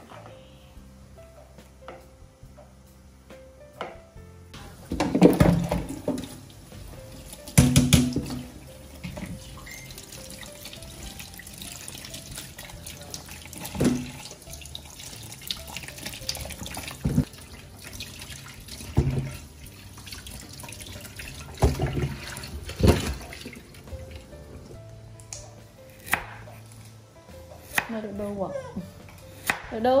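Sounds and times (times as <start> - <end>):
water splashing and dripping: 7.2 - 24.4
tap running into metal sink: 7.5 - 9.8, 13.6 - 14.4, 21.5 - 23.5.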